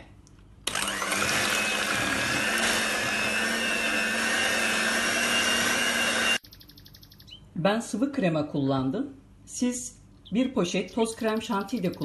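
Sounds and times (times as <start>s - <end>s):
electric hand mixer whipping cream: 0.7s - 6.4s.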